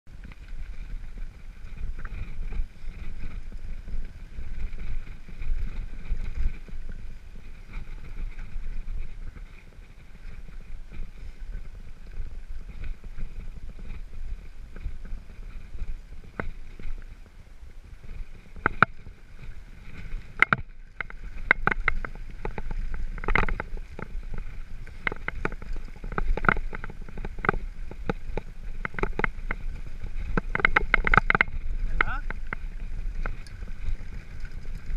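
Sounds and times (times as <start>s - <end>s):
bike rattling: 0.1s - 34.9s
bike tyres rumbling on stones: 0.1s - 34.9s
bike clattering and knocking: 20.4s - 34.9s.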